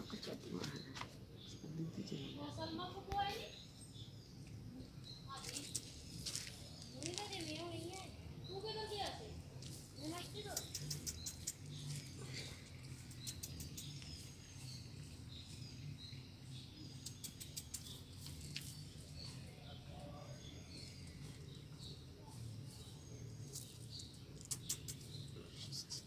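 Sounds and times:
small birds chirping: 0:00.0 - 0:26.0
sharp clicks: 0:10.4 - 0:11.9, 0:13.1 - 0:14.1, 0:17.0 - 0:18.0, 0:24.4 - 0:25.1.

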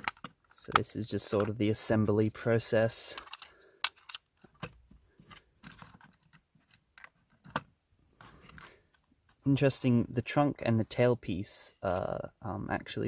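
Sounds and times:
plastic bricks clicking: 0:00.0 - 0:01.6, 0:03.0 - 0:07.7.

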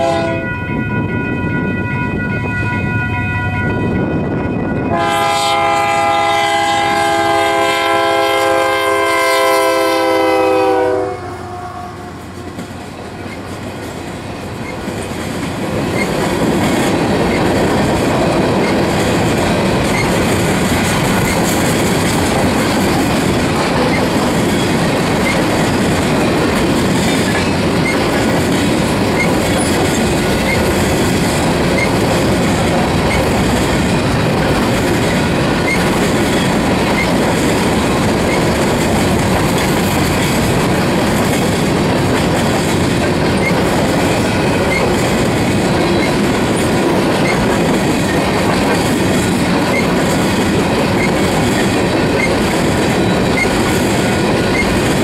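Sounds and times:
locomotive air horn blast: 0:00.0 - 0:00.6, 0:04.9 - 0:12.4
train cars clickety-clack: 0:03.7 - 0:11.3, 0:11.9 - 0:55.0.

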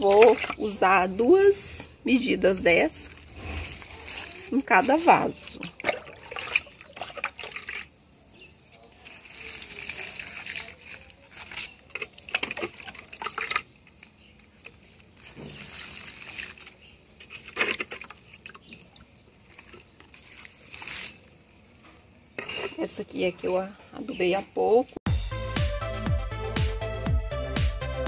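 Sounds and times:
water pouring and trickling: 0:00.0 - 0:01.2, 0:02.8 - 0:21.8.

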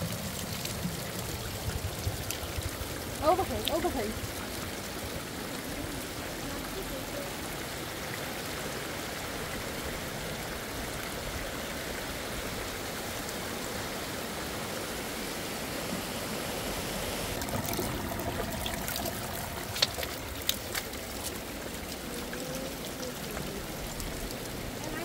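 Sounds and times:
water trickling down rock: 0:00.0 - 0:07.4, 0:17.4 - 0:25.0.

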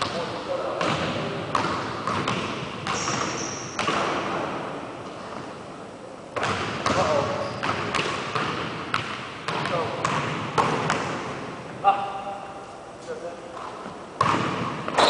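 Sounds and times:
basketballs bouncing on wooden floor: 0:00.0 - 0:04.5, 0:06.4 - 0:11.4, 0:13.6 - 0:15.0.

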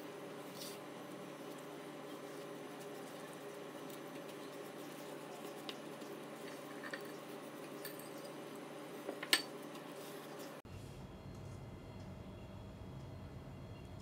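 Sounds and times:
steady low hum: 0:00.0 - 0:14.0
kitchenware clicking and clinking: 0:09.1 - 0:09.6.

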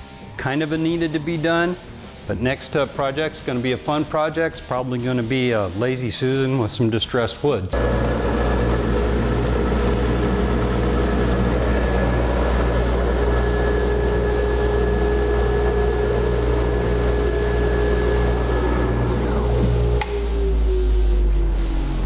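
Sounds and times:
router spindle whining: 0:07.7 - 0:20.7
dust collector humming: 0:07.7 - 0:20.8.

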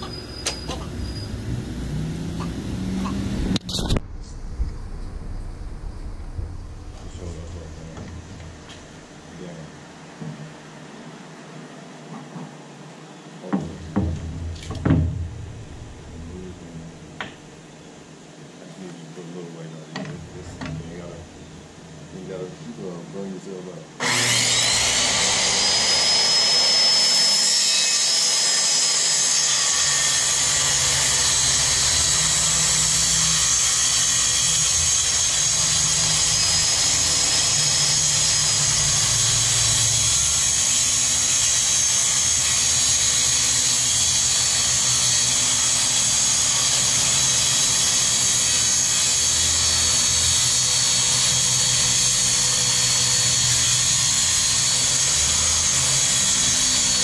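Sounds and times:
circular saw cutting plywood: 0:24.0 - 0:57.0.

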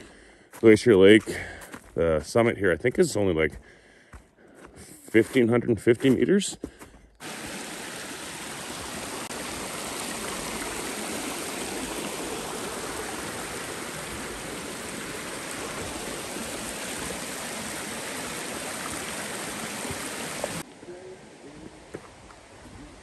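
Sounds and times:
stream of water rushing: 0:07.2 - 0:23.0.

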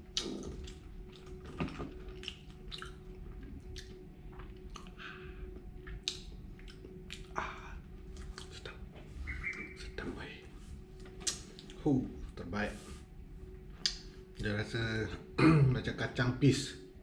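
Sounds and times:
crunching and chewing: 0:00.0 - 0:08.8, 0:11.0 - 0:11.9.

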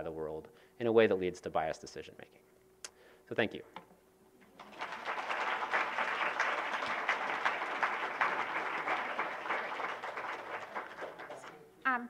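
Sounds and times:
audience applauding: 0:04.5 - 0:11.7.

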